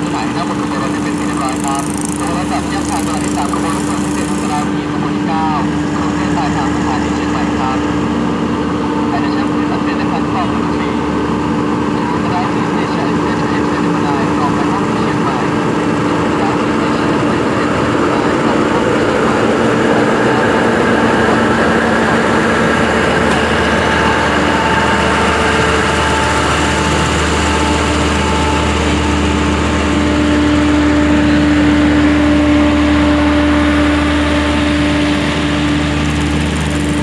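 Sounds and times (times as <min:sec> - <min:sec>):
train wheels on rails: 0:00.0 - 0:04.7, 0:17.0 - 0:37.0
train engine hum: 0:00.0 - 0:37.0.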